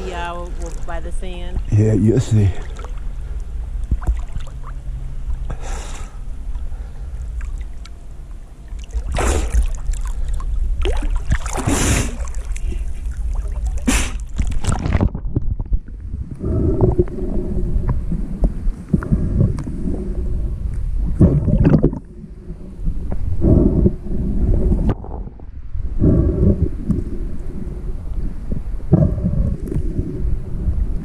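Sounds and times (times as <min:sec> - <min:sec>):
water sloshing against camera: 0:00.0 - 0:05.5, 0:06.5 - 0:25.3
constant low rumble: 0:00.0 - 0:31.0
short splashes: 0:08.8 - 0:15.1
muffled underwater gurgling: 0:10.9 - 0:31.0.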